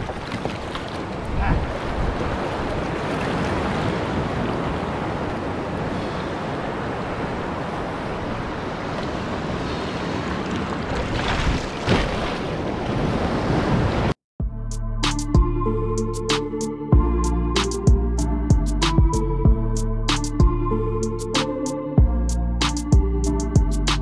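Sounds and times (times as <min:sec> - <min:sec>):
wind buffeting microphone: 0:00.0 - 0:14.1
ocean surf washing: 0:00.0 - 0:14.2
sharp water splashes: 0:10.4 - 0:13.9.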